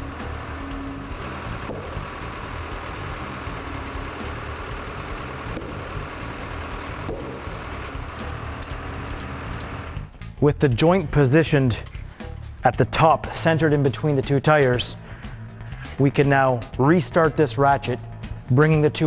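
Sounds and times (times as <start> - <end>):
loader engine running: 0.0 - 10.2.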